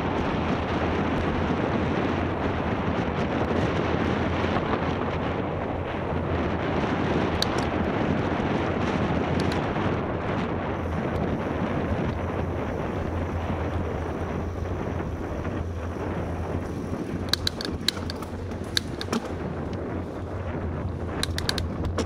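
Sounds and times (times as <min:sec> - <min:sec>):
bicycle tyre noise on pavement: 0:00.0 - 0:22.0
wind buffeting microphone: 0:00.0 - 0:22.0
sharp clicks or rattles: 0:07.4 - 0:07.8, 0:16.7 - 0:20.2, 0:21.1 - 0:22.0.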